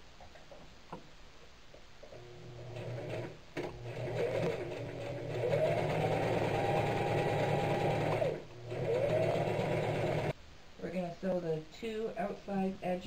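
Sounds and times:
sewing machine motor whine: 0:02.2 - 0:10.3.

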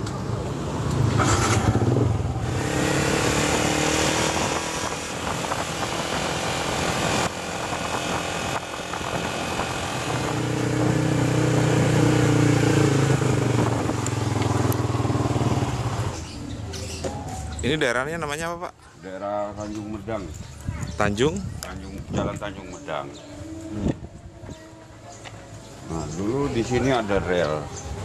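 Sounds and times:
road and wind noise: 0:00.0 - 0:28.0
motorcycle engine accelerating: 0:00.2 - 0:16.6.

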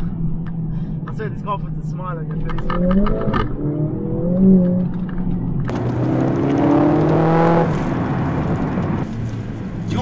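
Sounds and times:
car engine accelerating: 0:02.1 - 0:10.0.

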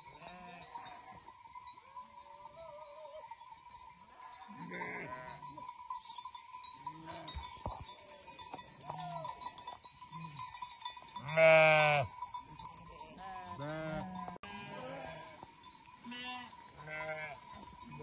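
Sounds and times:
sheep bleating: 0:00.2 - 0:01.2, 0:04.1 - 0:05.4, 0:11.2 - 0:12.1, 0:13.2 - 0:15.4, 0:16.0 - 0:17.4.

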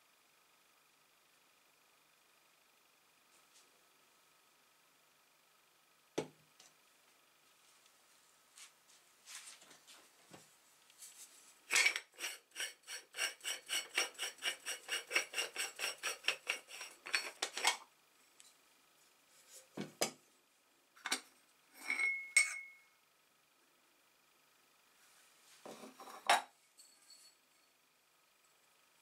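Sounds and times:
metal parts clinking: 0:11.7 - 0:12.1.

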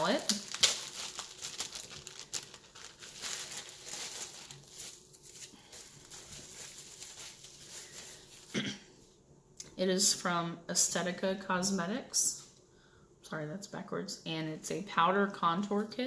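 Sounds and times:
plastic packaging crinkling: 0:00.0 - 0:08.6.

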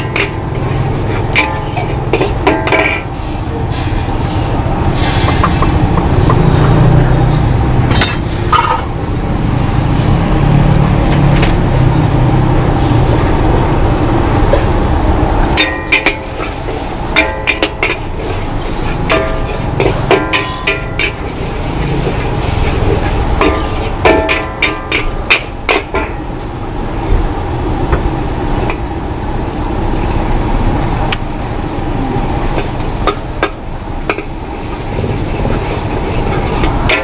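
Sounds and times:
metal spatula clanging on wok: 0:00.0 - 0:03.2, 0:07.9 - 0:09.0, 0:15.6 - 0:16.5, 0:17.1 - 0:18.2, 0:19.0 - 0:21.4, 0:23.3 - 0:26.2, 0:36.6 - 0:37.0.

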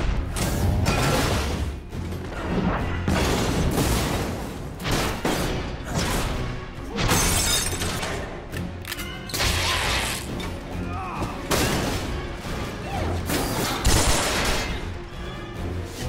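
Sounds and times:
action film score: 0:00.0 - 0:16.0.

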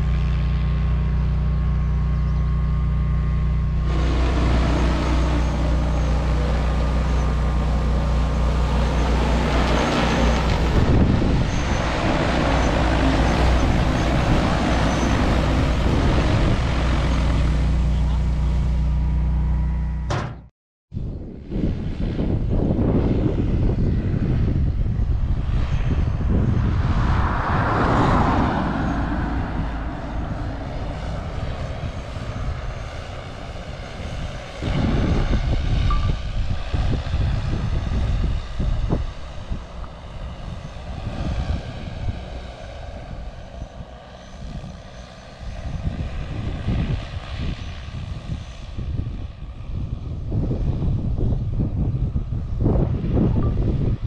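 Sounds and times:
drone rotors whining: 0:00.0 - 0:20.4, 0:24.7 - 0:48.5
wind buffeting microphone: 0:03.4 - 0:18.3, 0:20.9 - 0:54.0.

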